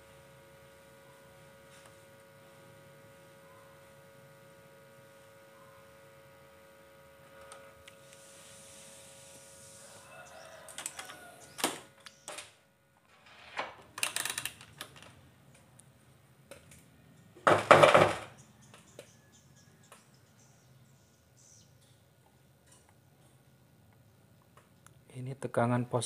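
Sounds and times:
faint steady hum: 0.0 - 26.0
clicks and rattles of electronics handling: 13.6 - 15.2.

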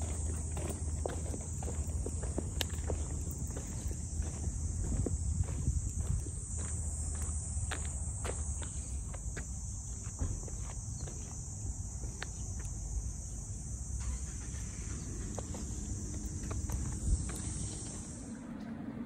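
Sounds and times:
footsteps on paved road: 0.0 - 13.8, 14.8 - 18.2
insects chorus: 0.0 - 19.0.

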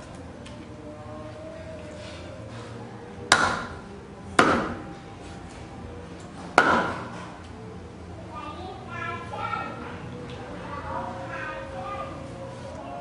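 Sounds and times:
cleaver chopping on wooden block: 3.3 - 3.7, 4.4 - 4.8, 6.6 - 7.0.

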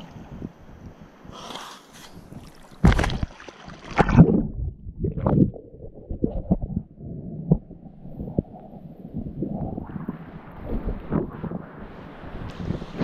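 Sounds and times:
sea water splashing: 1.2 - 4.6.

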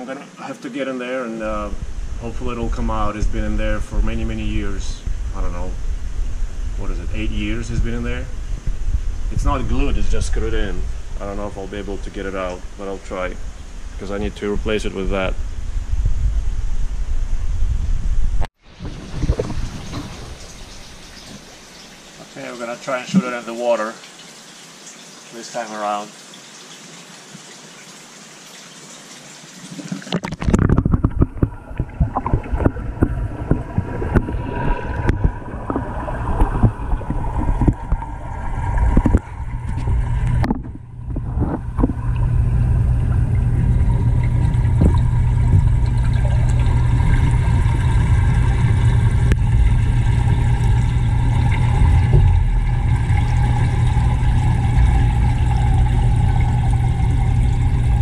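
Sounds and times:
low underwater rumble and hum: 1.4 - 22.1, 30.2 - 58.0
splashing and bubbling underwater: 18.6 - 23.7, 29.6 - 58.0.

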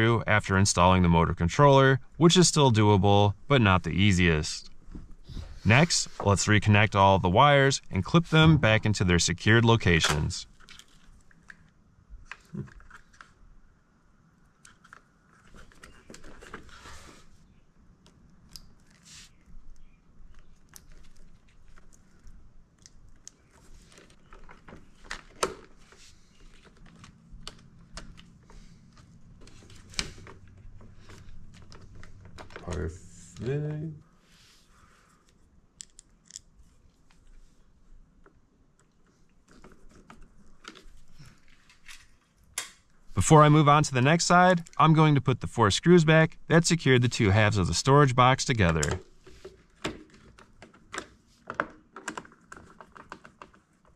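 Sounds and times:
cables rustling: 18.2 - 33.5
plastic connectors clicking: 35.8 - 36.5.

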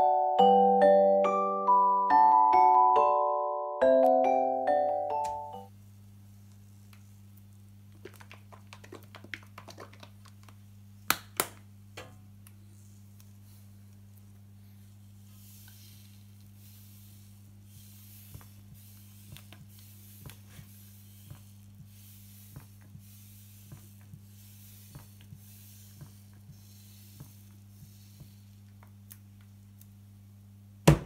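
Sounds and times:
steady low hum: 10.5 - 31.0
faint hiss: 12.5 - 28.7.

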